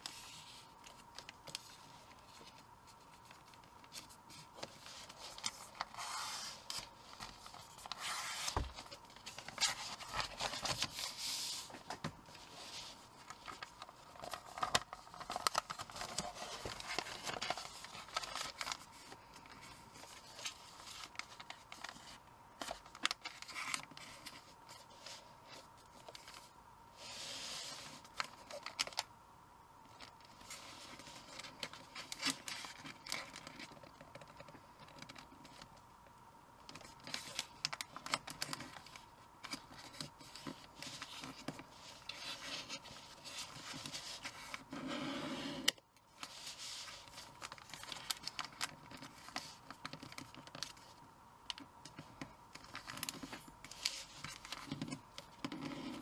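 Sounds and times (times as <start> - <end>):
paper rustling being folded: 0.0 - 29.1, 29.9 - 35.8, 36.7 - 45.0, 45.6 - 56.0.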